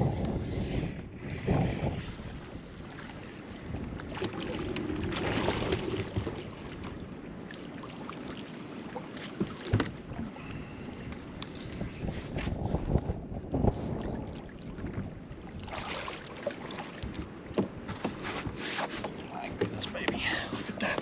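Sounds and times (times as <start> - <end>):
wind on microphone: 0.0 - 7.2, 9.7 - 16.1
water lapping against boat hull: 0.0 - 21.0.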